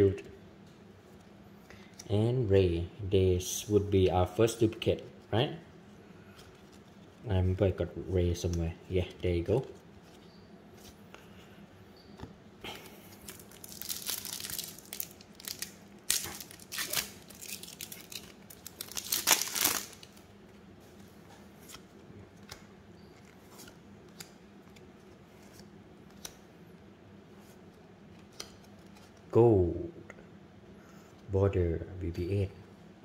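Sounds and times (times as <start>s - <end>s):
wrapper tearing and crinkling: 13.2s - 20.2s.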